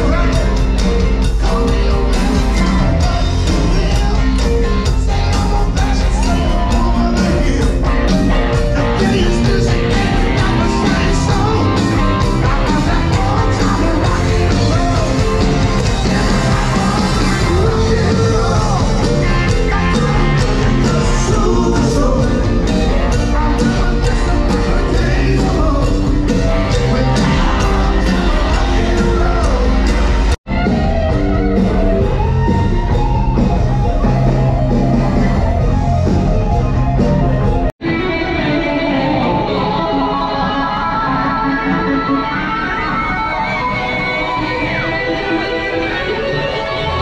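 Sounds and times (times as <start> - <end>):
person singing: 0.0 - 33.4
drum kit beat: 0.0 - 37.8
electric guitars: 0.0 - 47.0.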